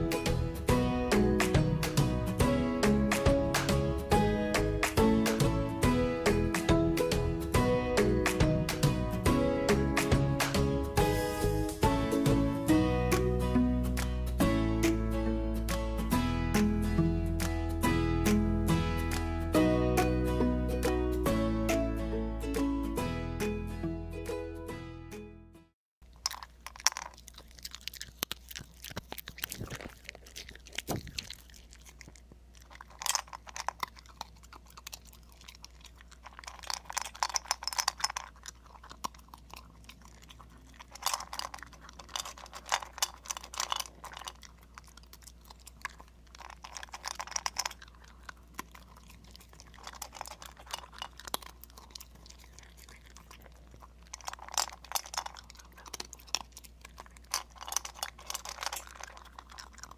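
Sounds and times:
dog crunching and chewing food: 0.0 - 13.3, 26.0 - 59.9.

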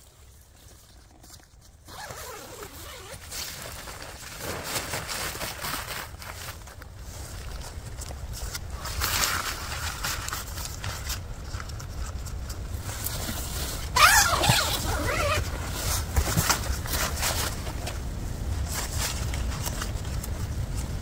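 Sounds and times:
tent fabric rustling: 0.0 - 21.0
zipper pull: 1.8 - 3.5, 13.0 - 16.6.

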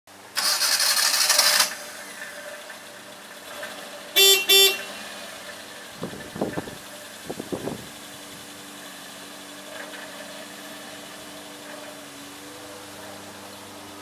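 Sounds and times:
van engine starting and idling: 0.1 - 14.0
van horn beeps: 4.1 - 5.3.

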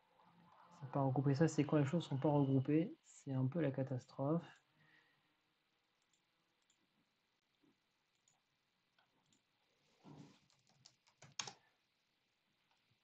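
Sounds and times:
keyboard typing: 8.1 - 8.4, 10.2 - 11.6.

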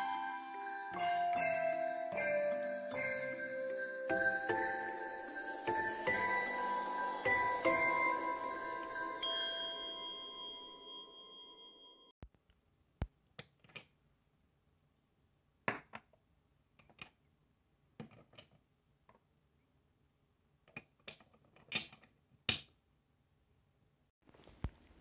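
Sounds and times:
small blocks clicking and knocking: 13.3 - 14.0, 15.6 - 17.3, 18.0 - 19.3, 20.6 - 22.8.

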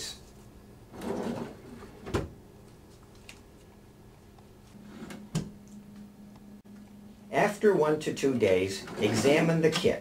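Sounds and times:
faint low hum: 0.0 - 10.0
drawer sliding open: 0.9 - 2.3, 8.8 - 9.5.

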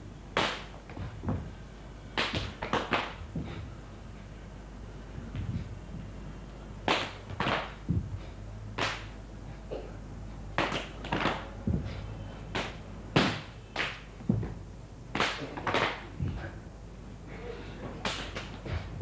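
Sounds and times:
sharp slaps on stage: 0.4 - 1.2, 2.2 - 3.6, 6.9 - 8.1, 8.8 - 9.2, 10.6 - 11.5, 12.5 - 14.5, 15.1 - 16.1, 18.0 - 18.8
deep thumps: 1.0 - 1.5, 3.2 - 3.7, 7.8 - 8.3, 11.6 - 12.0, 14.2 - 14.7.

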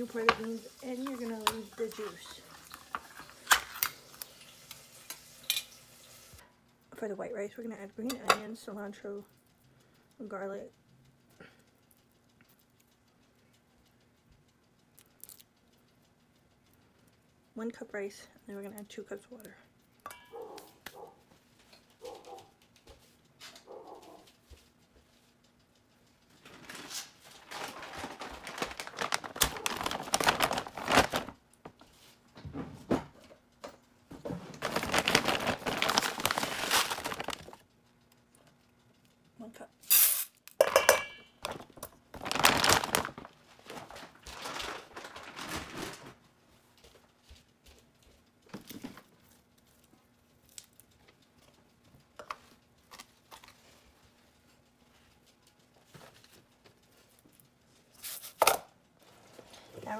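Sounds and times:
bag of rice crinkling: 26.4 - 31.4, 34.5 - 37.6, 41.4 - 46.2.

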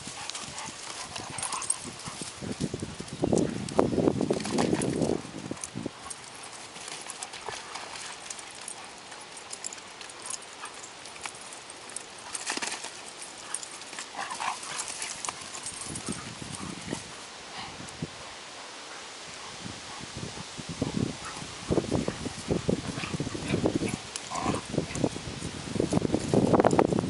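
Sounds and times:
paw thuds of dogs galloping: 0.0 - 17.7.

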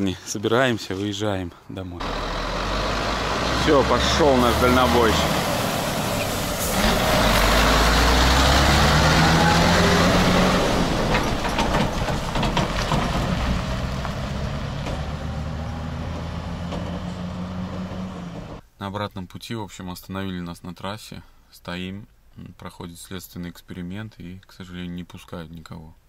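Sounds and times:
truck diesel engine driving off: 2.0 - 18.6.

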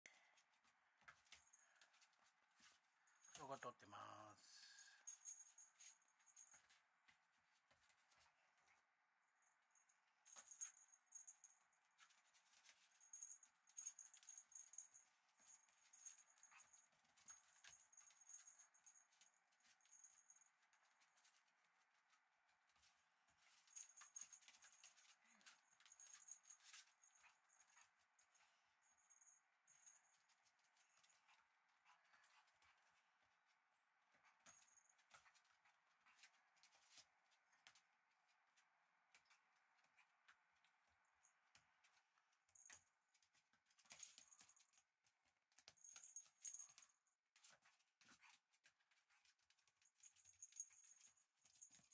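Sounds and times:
toy jingling: 4.8 - 6.8, 10.2 - 20.5, 23.6 - 30.2, 49.8 - 51.9
puppy paws clicking on floor: 10.3 - 33.6, 34.2 - 51.9.

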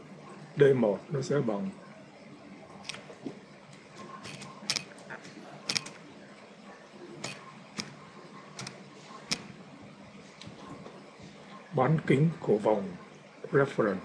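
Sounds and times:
computer mouse clicks: 2.8 - 3.0, 4.0 - 6.0, 7.2 - 8.0, 8.6 - 9.5
keyboard clicks: 4.0 - 6.0, 7.2 - 9.5.

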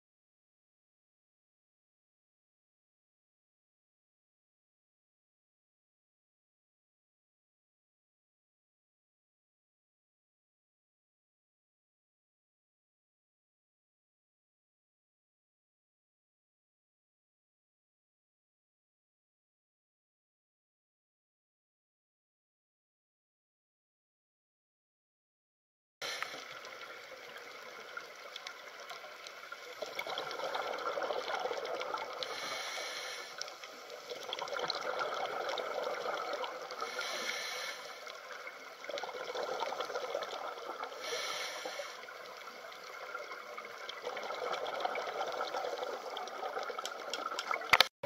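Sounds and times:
underwater bubbling and rushing water: 26.0 - 47.9.

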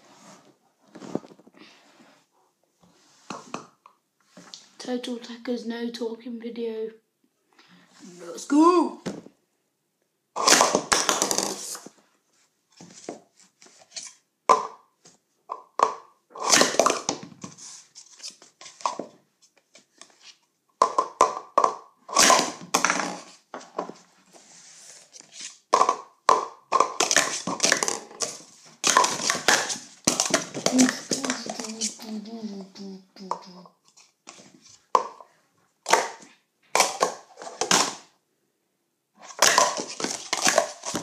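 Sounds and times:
plastic cups clacking: 10.4 - 12.0, 13.8 - 14.9, 15.5 - 20.2, 20.8 - 24.0, 24.9 - 32.6, 33.2 - 38.1, 39.2 - 41.0.

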